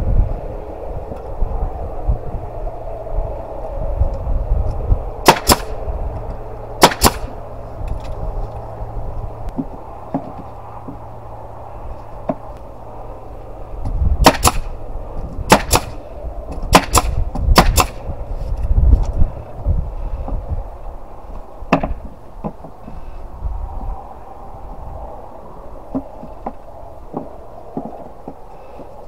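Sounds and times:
steady low hum: 0.0 - 29.0
nail gun firing: 5.2 - 5.7, 6.8 - 7.3, 14.2 - 14.7, 15.5 - 16.0, 16.7 - 18.0.

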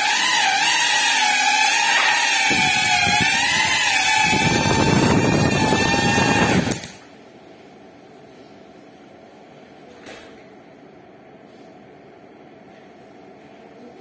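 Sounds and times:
drone motors whining: 0.0 - 7.0.

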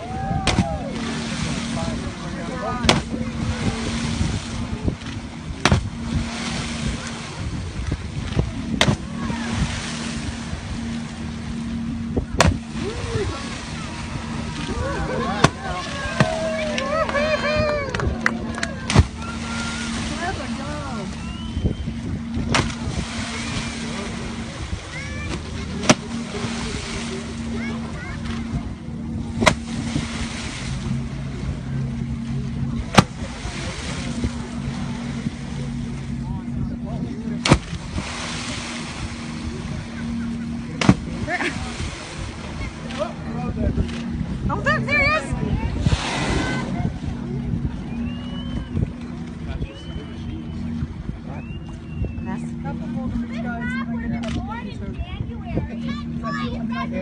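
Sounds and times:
whale fin slapping water: 0.0 - 11.5, 12.2 - 31.8, 37.4 - 40.0
boat engine humming: 0.0 - 57.0
sea noise: 0.0 - 57.0
wind: 0.0 - 57.0.

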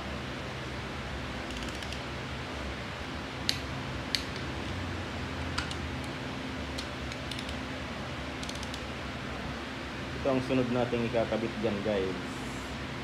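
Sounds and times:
steady shop hum: 0.0 - 13.0
ratchet wrench clicking: 8.4 - 8.8.

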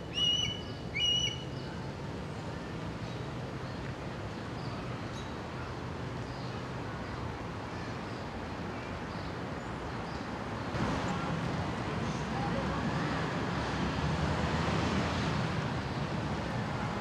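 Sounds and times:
small birds chirping: 0.0 - 1.9
distant city traffic rumble: 0.0 - 17.0.

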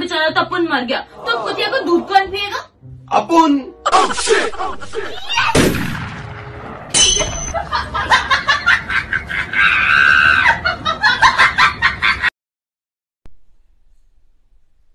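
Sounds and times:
high-pitched laughter: 3.9 - 5.6, 7.6 - 12.3.

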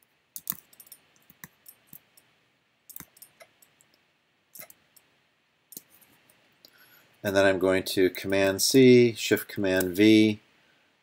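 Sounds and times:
mouse and keyboard clicking: 0.4 - 2.3, 2.9 - 4.0, 4.6 - 5.1.

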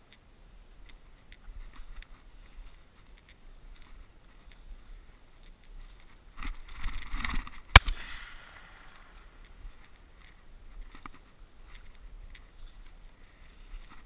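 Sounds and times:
rustling movement: 0.0 - 14.0
shotgun shot: 7.7 - 9.1.

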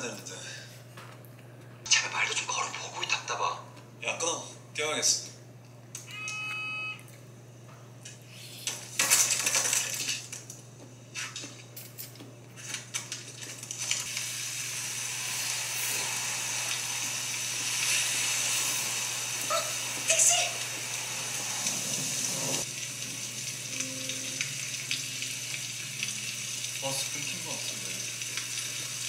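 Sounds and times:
slurping noodles: 21.0 - 22.7.

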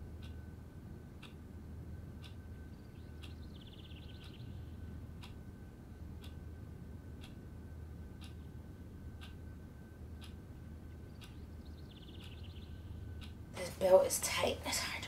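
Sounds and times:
clock ticking: 0.0 - 0.5, 1.2 - 1.5, 2.1 - 2.6, 5.2 - 5.6, 6.2 - 6.5, 7.1 - 7.4, 8.1 - 8.5, 9.2 - 9.4, 10.2 - 11.4
low room hum: 0.0 - 15.0.

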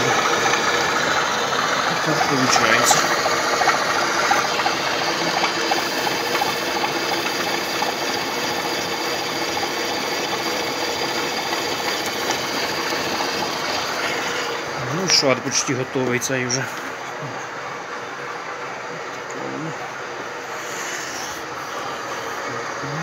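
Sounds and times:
milling machine cutting metal: 0.0 - 16.8.

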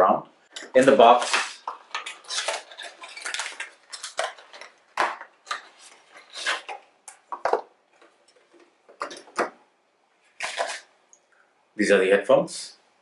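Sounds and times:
cardboard and plastic rustling: 0.8 - 9.4, 10.3 - 10.9.

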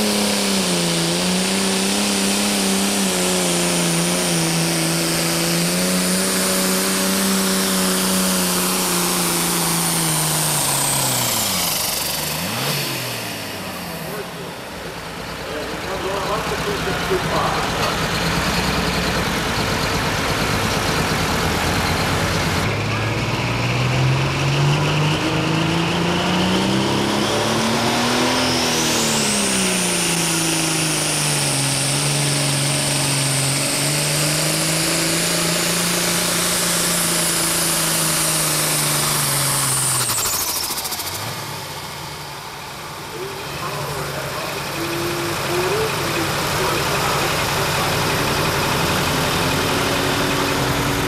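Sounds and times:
another tractor engine running: 0.0 - 51.0
diesel tractor engine under load: 0.0 - 51.0
turbocharger whistle: 23.0 - 41.6.

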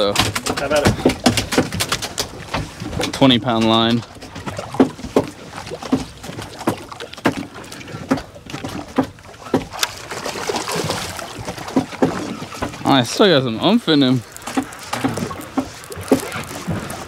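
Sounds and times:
fish splashing at surface: 0.0 - 17.0
water lapping against boat hull: 0.0 - 17.0
knocks on boat hull: 4.4 - 9.9.

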